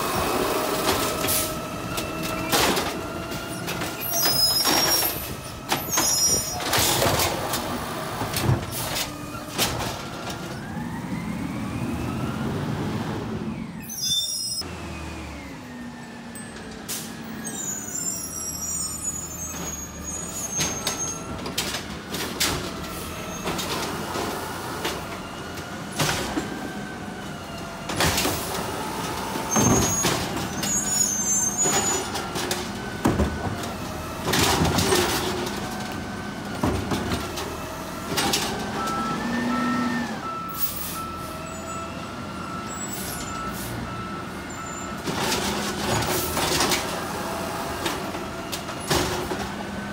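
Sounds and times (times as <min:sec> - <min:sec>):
garbage truck diesel engine: 0:00.0 - 0:49.9
beeping alarm: 0:38.8 - 0:45.0.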